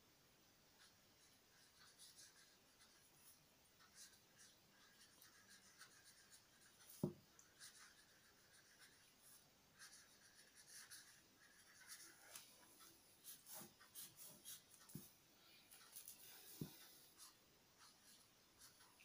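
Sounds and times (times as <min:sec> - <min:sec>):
pen scratching on paper: 0:00.8 - 0:15.1.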